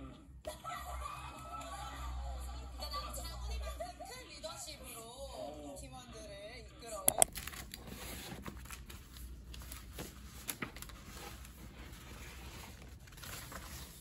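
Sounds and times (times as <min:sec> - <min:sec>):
paper and folders rustling: 0:07.2 - 0:14.0.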